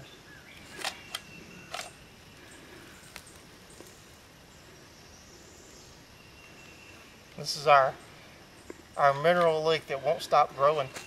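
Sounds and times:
quiet woodland background: 0.0 - 11.0
camera clicks: 0.7 - 2.0.

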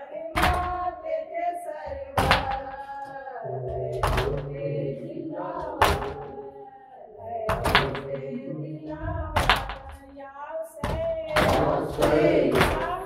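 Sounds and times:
voices chanting a lament: 0.0 - 10.2, 10.8 - 13.0
chest slapping: 7.5 - 8.1.

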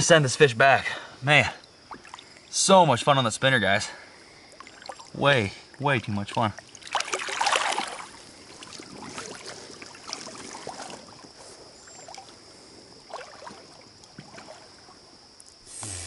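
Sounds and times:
water trickling: 1.3 - 15.6
fish splashing in shallow water: 1.6 - 2.5, 4.1 - 5.8, 6.6 - 15.4.

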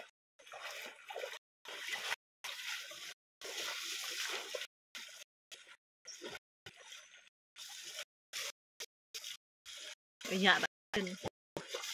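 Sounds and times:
water splashing and sloshing: 0.0 - 11.9.

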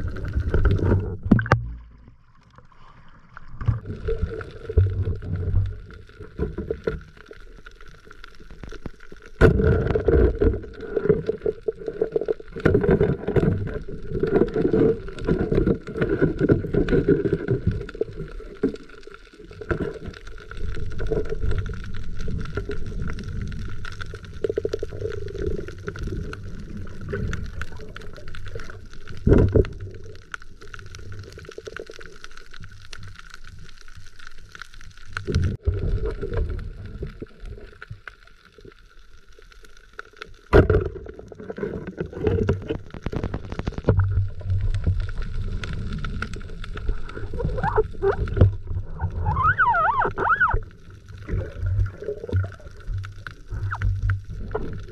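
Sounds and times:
underwater rumble and gurgling: 0.0 - 54.9
sharp knocks underwater: 0.2 - 2.1, 9.4 - 10.6, 40.5 - 41.2
short wavering squeaks: 49.1 - 50.7.

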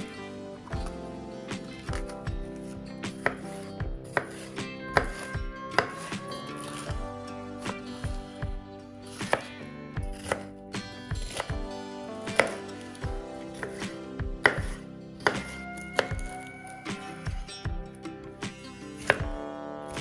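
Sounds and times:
soft background music: 0.0 - 20.0
knife slicing pepper on board: 1.6 - 7.0, 9.1 - 11.6, 12.2 - 17.2, 19.0 - 19.3.

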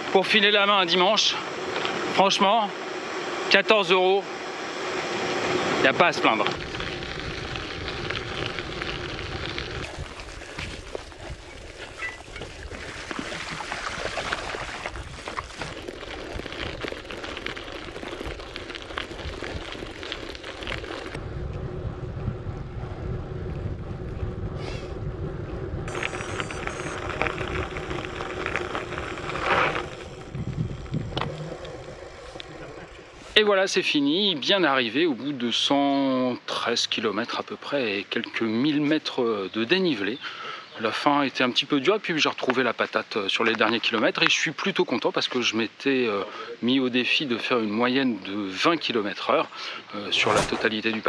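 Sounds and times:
bike tyres crackling on gravel: 5.4 - 34.5, 47.1 - 51.0
wind buffeting microphone: 6.4 - 33.4.

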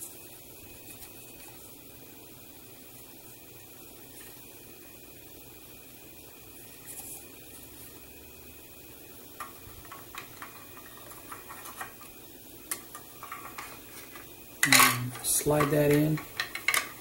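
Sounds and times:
plastic parts clicking together: 12.7 - 17.0.

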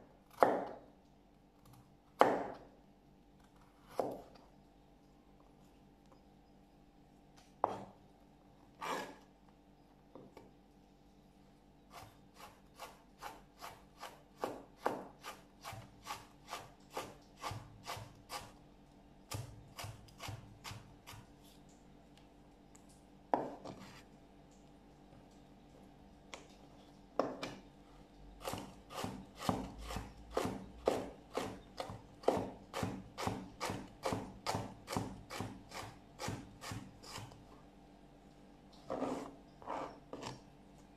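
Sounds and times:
knife chopping on cutting board: 0.3 - 0.8, 2.2 - 2.6, 3.9 - 4.3, 7.6 - 7.9, 12.0 - 18.5, 28.4 - 37.3.

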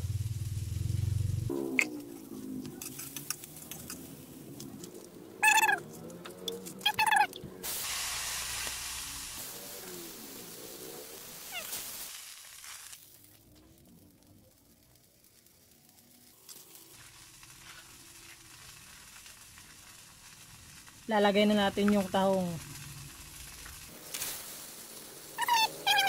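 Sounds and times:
liquid sizzling in hot wok: 0.0 - 5.8, 6.4 - 26.0.

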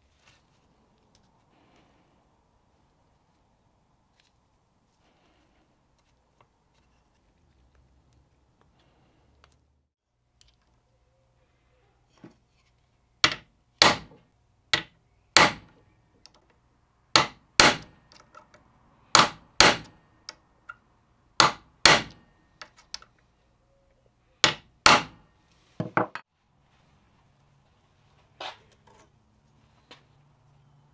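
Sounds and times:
hammer striking steel punch: 13.2 - 14.1, 14.8 - 15.7, 17.2 - 17.9, 19.2 - 20.0, 21.4 - 22.2, 24.4 - 25.2.

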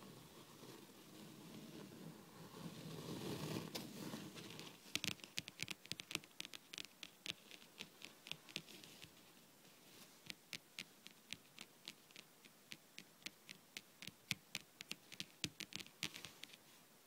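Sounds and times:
fingernails tapping on a tabletop: 4.9 - 8.7.

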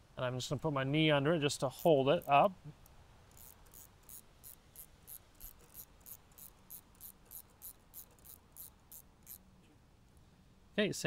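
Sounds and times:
nut scraping on threaded rod: 3.3 - 9.4.

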